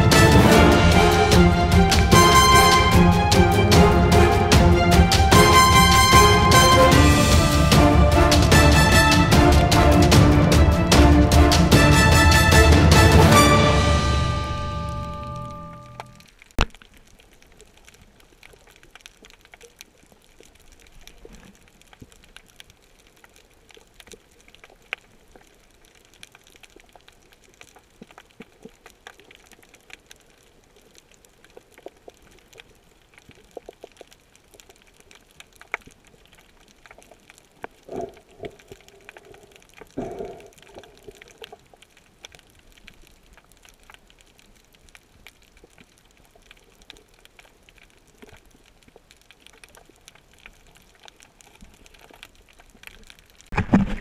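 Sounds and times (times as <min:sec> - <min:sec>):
small underwater clicks and crackles: 0:15.4 - 0:54.0
faint underwater hiss: 0:37.5 - 0:43.0.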